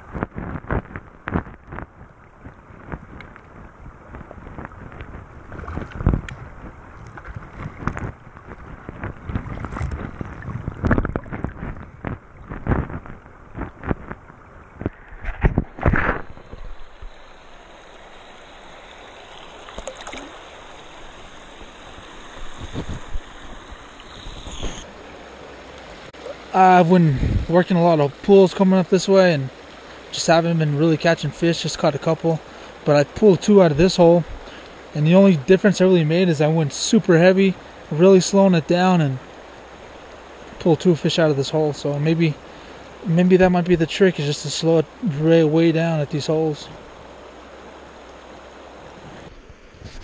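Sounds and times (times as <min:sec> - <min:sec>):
stream rushing: 0:00.0 - 0:50.0
muffled underwater sloshing: 0:00.1 - 0:44.1
knocks and bumps underwater: 0:04.1 - 0:17.2.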